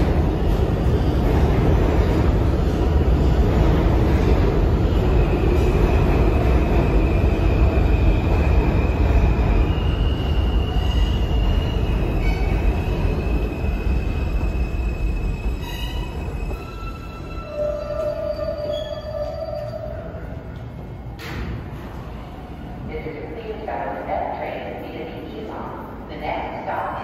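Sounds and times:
subway train rumbling: 0:00.0 - 0:27.0
metallic wheel squeal: 0:15.2 - 0:20.0.

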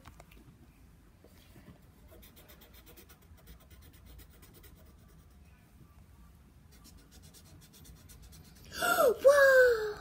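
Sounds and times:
crayon scribbling on paper: 0:02.0 - 0:05.4, 0:06.7 - 0:08.7.

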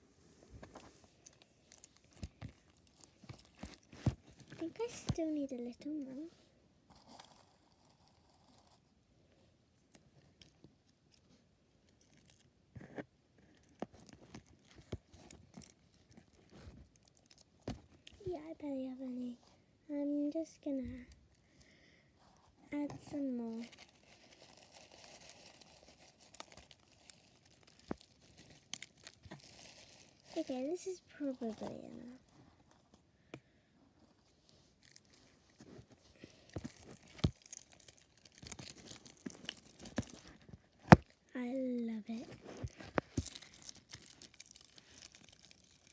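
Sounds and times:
slime crinkling and crackling: 0:01.1 - 0:06.3, 0:13.6 - 0:18.4, 0:22.8 - 0:32.4, 0:34.8 - 0:41.3, 0:42.0 - 0:45.9.

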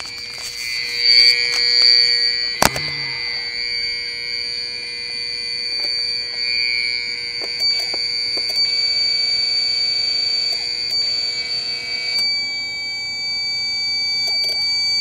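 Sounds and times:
alarm high-pitched tone: 0:00.0 - 0:15.0
sharp knock: 0:02.6 - 0:03.2.

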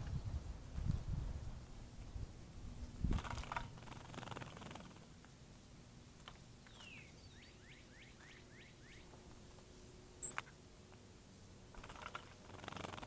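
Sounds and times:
bird whistling: 0:06.7 - 0:09.1, 0:10.2 - 0:10.4.

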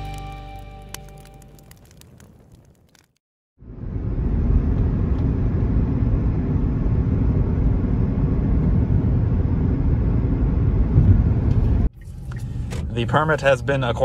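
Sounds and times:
car cabin road noise: 0:03.6 - 0:14.0.

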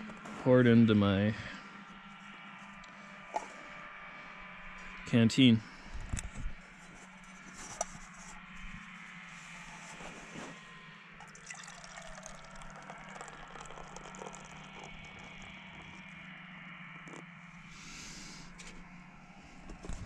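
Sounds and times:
beer pouring into metal cup: 0:11.2 - 0:17.3.

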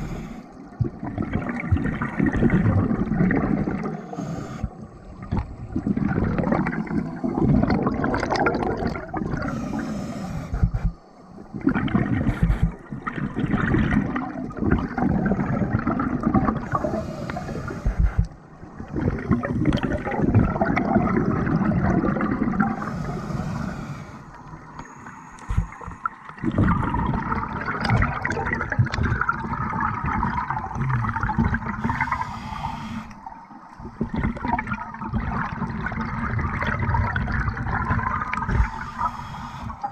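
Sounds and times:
regulator inhalation hiss: 0:00.0 - 0:00.6, 0:03.9 - 0:04.8, 0:09.4 - 0:11.0, 0:16.7 - 0:18.3, 0:22.8 - 0:26.0, 0:31.8 - 0:33.3, 0:38.5 - 0:39.9
exhaled bubbles gurgling: 0:00.0 - 0:39.9.

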